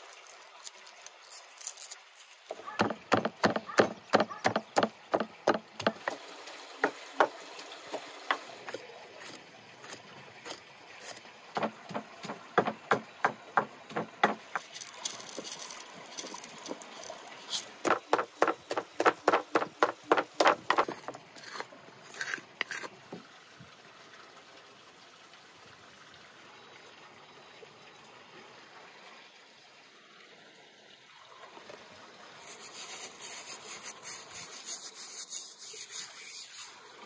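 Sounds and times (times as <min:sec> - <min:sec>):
knife chopping on wooden board: 0:02.8 - 0:06.2, 0:11.6 - 0:14.6, 0:17.8 - 0:21.6.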